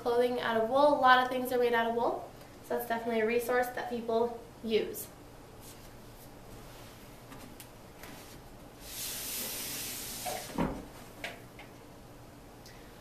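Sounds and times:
thump: 10.4 - 10.9.

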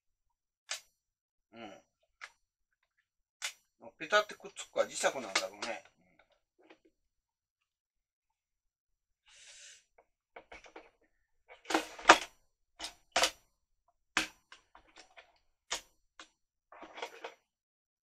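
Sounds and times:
plastic parts clicking: 11.6 - 13.4.

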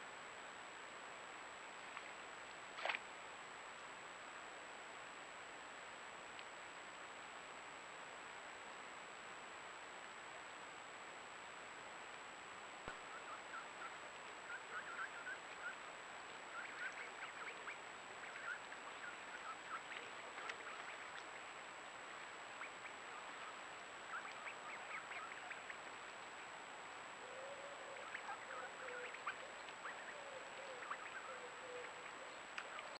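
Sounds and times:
low wavering animal call: 27.2 - 33.0.

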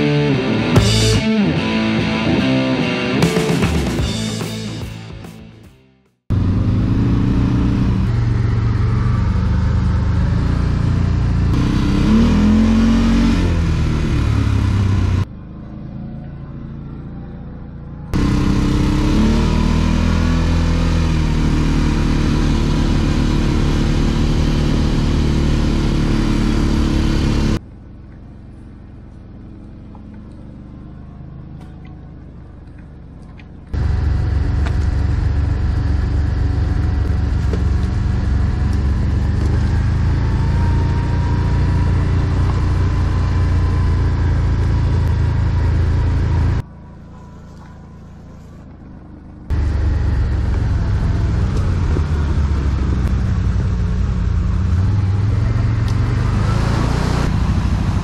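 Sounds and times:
atv engine accelerating: 6.3 - 58.0.

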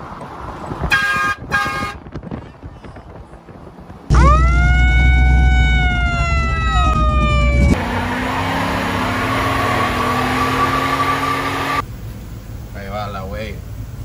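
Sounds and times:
siren-like tone: 4.1 - 11.8
truck engine revving high: 4.1 - 11.8.

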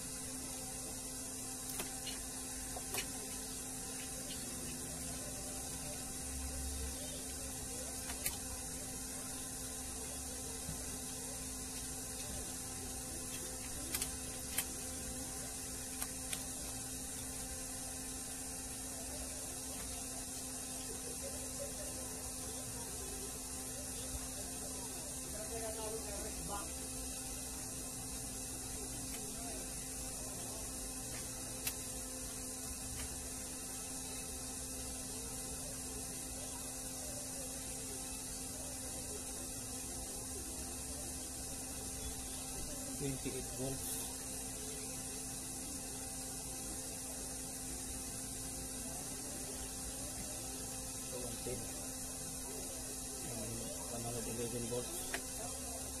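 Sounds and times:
faint hum: 0.0 - 56.0
steady hiss: 0.0 - 56.0
sharp click: 31.6 - 31.8.

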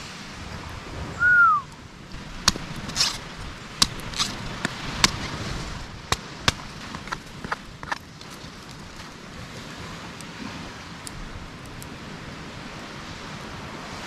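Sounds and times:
falling whistle: 1.2 - 1.7
machete chopping coconut: 2.4 - 8.3.

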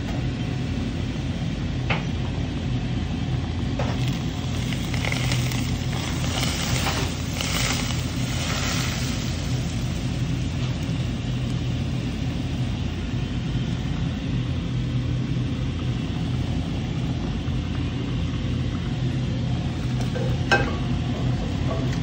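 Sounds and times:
steady low hum: 0.0 - 22.0
hot oil sizzling: 3.8 - 13.6.

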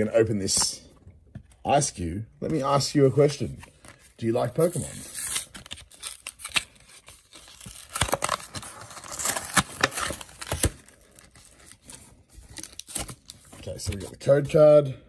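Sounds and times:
plastic packaging tearing and crinkling: 4.5 - 14.2.

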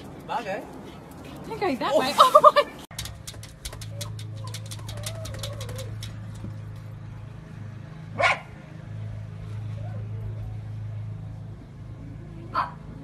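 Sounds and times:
light clicks: 2.9 - 6.5
dog yapping: 3.0 - 6.3.

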